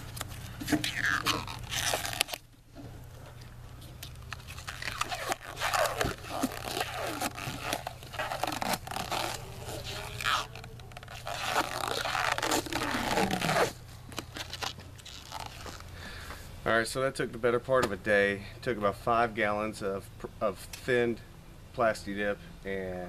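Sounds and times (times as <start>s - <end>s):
tape and film peeling and tearing: 0.0s - 2.5s, 3.7s - 15.9s.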